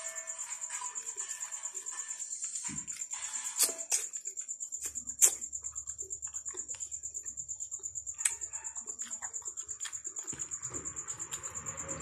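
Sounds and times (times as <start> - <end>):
smacking clicks of eating: 3.6 - 11.5.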